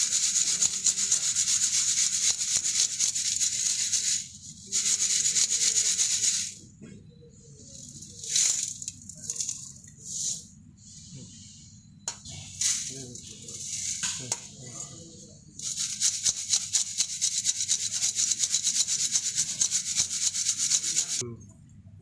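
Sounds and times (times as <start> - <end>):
soil hissing and scraping: 0.0 - 6.6, 7.6 - 21.2
soil rasping against sieve mesh: 15.6 - 21.2.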